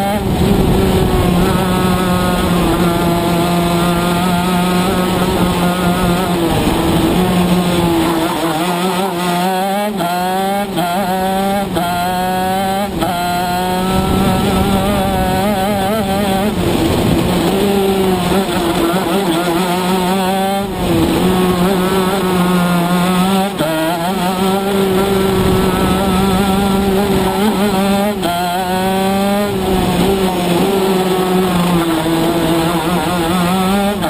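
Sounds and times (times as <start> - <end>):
kart engine upshifting: 0.0 - 34.0.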